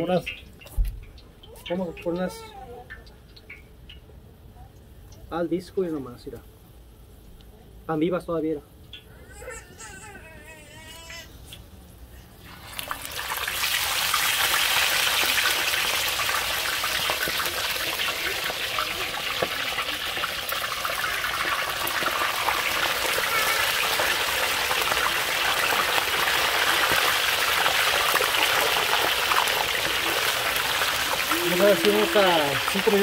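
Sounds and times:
fish frying in hot oil: 0:00.0 - 0:04.2, 0:12.3 - 0:33.0.

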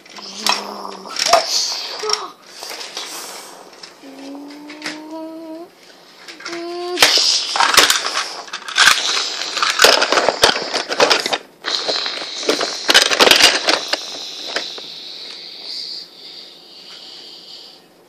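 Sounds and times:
plastic bricks clattering: 0:06.3 - 0:14.7.

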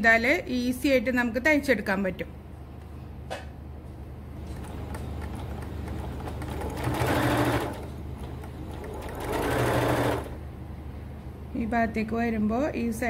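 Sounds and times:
sewing machine stitching: 0:04.4 - 0:10.4.

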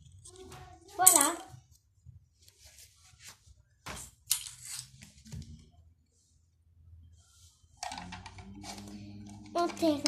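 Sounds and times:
close rustling and handling noise: 0:00.0 - 0:05.6.

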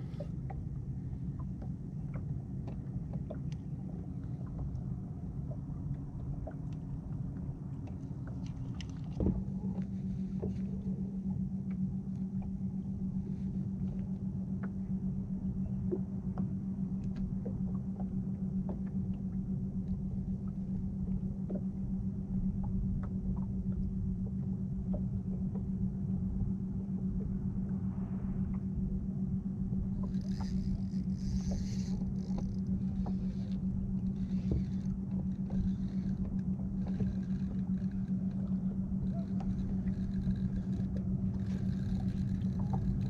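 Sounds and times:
light ticks: 0:00.0 - 0:14.8, 0:15.9 - 0:21.9, 0:22.6 - 0:25.7, 0:29.9 - 0:43.0
wind and water rumble around boat: 0:00.0 - 0:43.0
electric trolling motor humming: 0:29.5 - 0:43.0.

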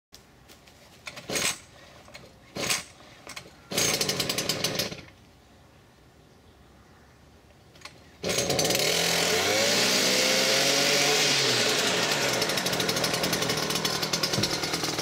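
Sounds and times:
starter cord pulls: 0:11.8 - 0:15.0
two-stroke engine running unevenly: 0:12.0 - 0:15.0.

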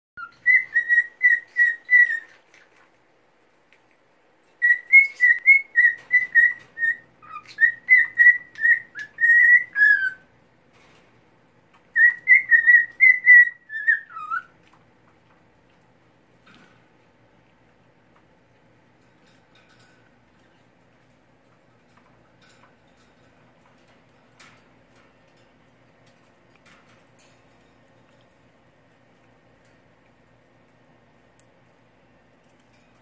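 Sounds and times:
cockatiel whistling: 0:00.2 - 0:02.4, 0:04.6 - 0:10.2, 0:11.9 - 0:14.5.

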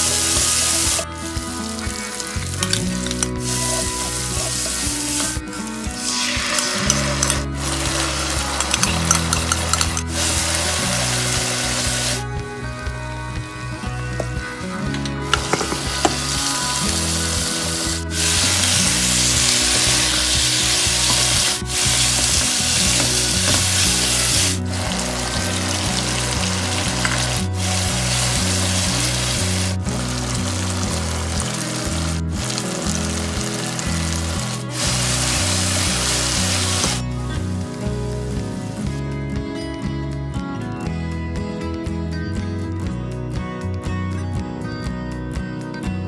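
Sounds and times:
meat and onions sizzling: 0:00.0 - 0:12.4, 0:15.2 - 0:39.0
quiet background music: 0:00.0 - 0:46.0.

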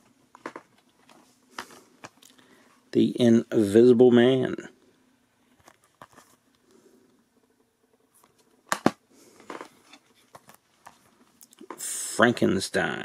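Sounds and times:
plastic case clicking and rustling: 0:08.7 - 0:11.0.

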